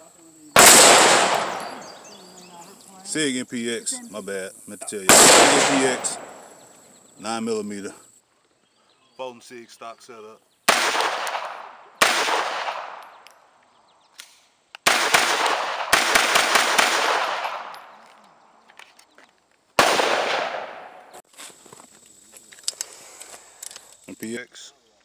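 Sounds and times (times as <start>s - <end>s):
gunshots with echo: 0.6s - 2.2s, 5.1s - 6.6s, 10.7s - 13.2s, 14.8s - 17.9s, 19.8s - 21.2s
gun handling clicks: 12.6s - 13.4s, 14.1s - 15.6s, 22.5s - 24.0s.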